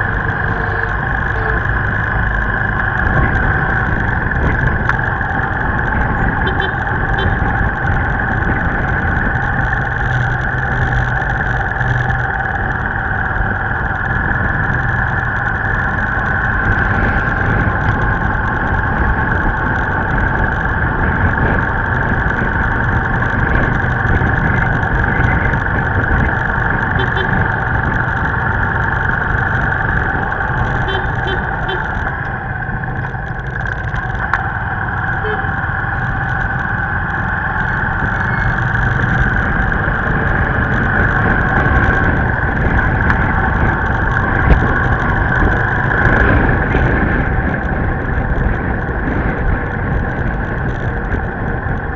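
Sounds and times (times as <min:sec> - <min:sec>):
road and wind noise: 0:00.0 - 0:51.9
vehicle engine hum: 0:00.0 - 0:51.9.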